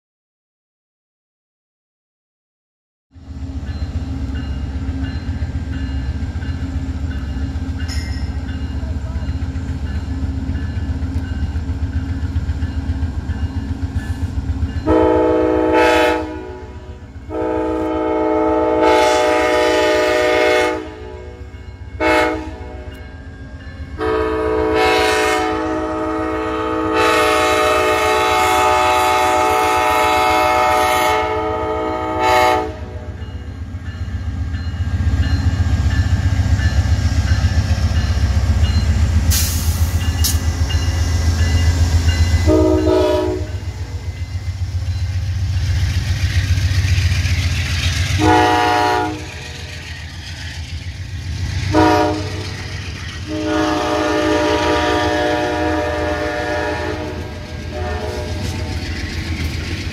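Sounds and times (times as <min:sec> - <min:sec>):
diesel locomotive rumble: 0:03.2 - 0:59.9
locomotive horn blasts: 0:14.8 - 0:23.1, 0:24.0 - 0:33.2, 0:42.4 - 0:43.8, 0:48.1 - 0:49.8, 0:51.7 - 0:52.6, 0:53.2 - 0:58.7.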